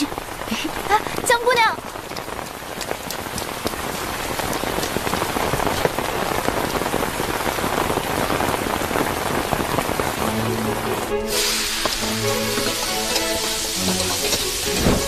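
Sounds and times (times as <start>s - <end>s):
heavy rain: 0.0s - 15.0s
drops ticking close by: 1.8s - 5.8s
low music notes: 10.2s - 15.0s.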